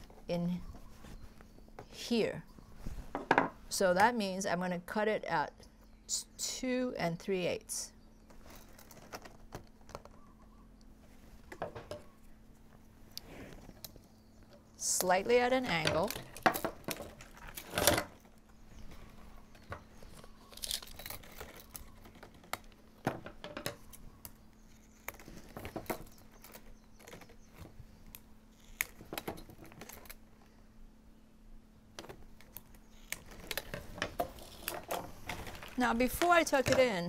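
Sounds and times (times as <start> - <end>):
plastic straps clicking and crinkling: 19.6 - 22.9, 32.1 - 36.8.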